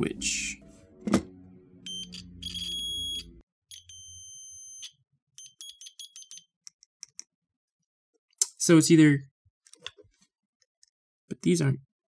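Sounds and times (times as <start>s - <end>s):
multimeter beeping: 1.9s - 6.5s.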